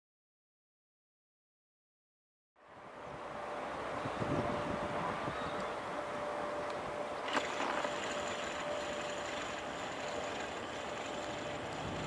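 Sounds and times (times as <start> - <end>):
diesel train engine drone: 2.6 - 12.0.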